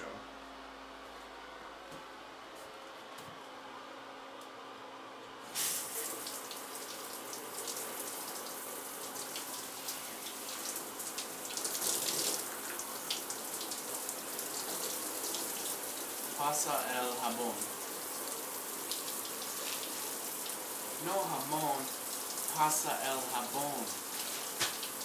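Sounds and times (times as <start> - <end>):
shower water spraying: 5.5 - 25.0.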